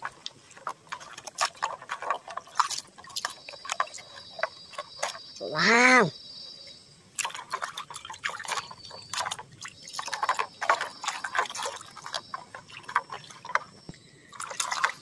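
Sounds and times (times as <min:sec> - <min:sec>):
water sloshing in plastic basin: 0:00.0 - 0:06.1, 0:07.1 - 0:15.0
water dripping: 0:00.0 - 0:15.0.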